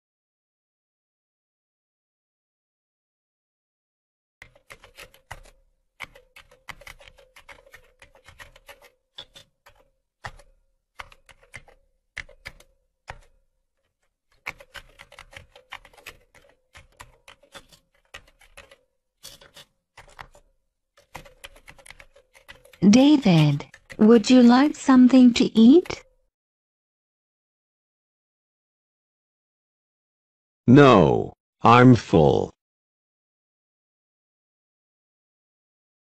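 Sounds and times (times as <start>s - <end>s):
keyboard typing: 4.4s - 26.1s.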